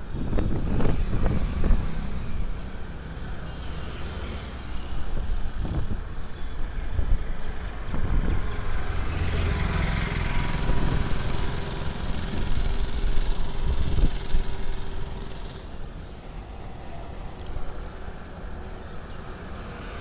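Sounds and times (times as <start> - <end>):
vehicle low rumble: 0.0 - 20.0
passing vehicle whoosh: 7.8 - 17.2.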